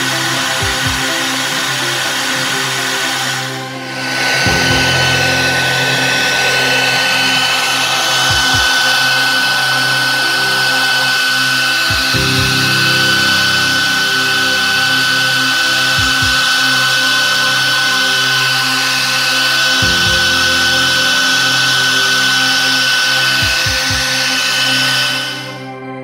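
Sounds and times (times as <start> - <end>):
metal cutting noise: 0.0 - 25.8
cnc router spindle whine: 0.0 - 26.0.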